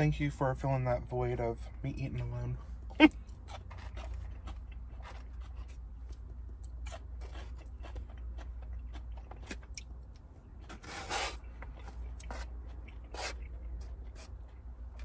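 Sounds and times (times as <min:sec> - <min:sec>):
steady low hum: 0:00.0 - 0:15.0
scraping takeout food container: 0:03.3 - 0:05.8, 0:10.6 - 0:14.5.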